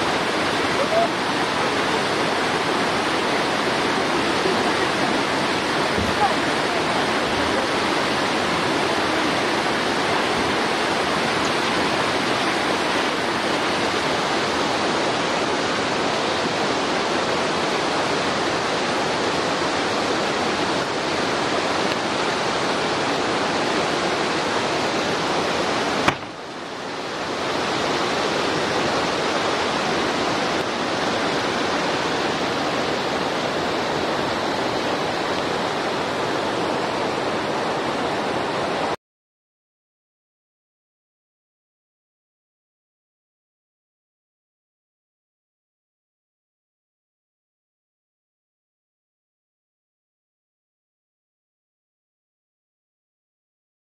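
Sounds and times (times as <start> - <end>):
running water rushing: 0.0 - 39.0.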